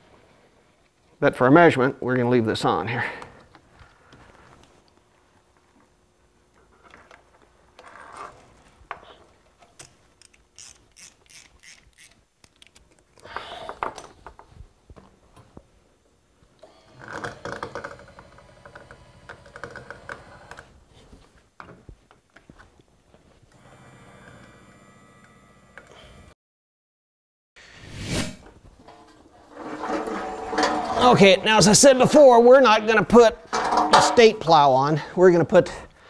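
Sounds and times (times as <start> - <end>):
metal hardware clatter: 33.5 - 34.4.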